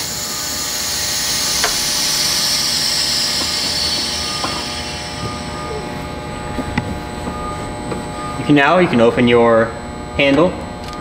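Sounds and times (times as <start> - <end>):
air hissing through valve: 0.0 - 6.1.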